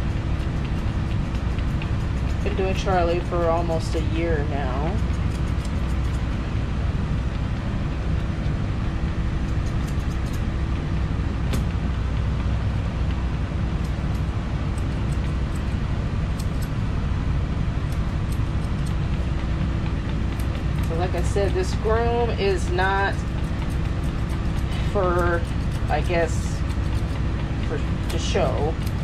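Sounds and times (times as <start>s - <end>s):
machinery drone: 0.0s - 29.0s
grooming scissors snipping: 0.3s - 6.4s, 9.4s - 12.3s, 13.8s - 16.8s, 17.8s - 29.0s.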